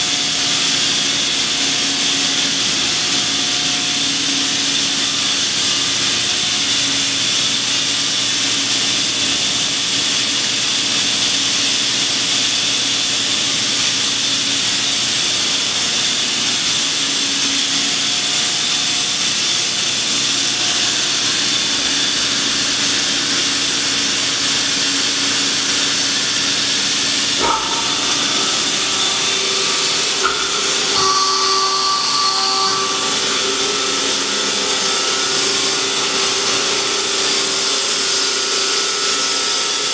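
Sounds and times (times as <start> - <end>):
hydraulic pump hiss and hum: 0.0 - 39.9
higher whining tones: 27.1 - 39.1.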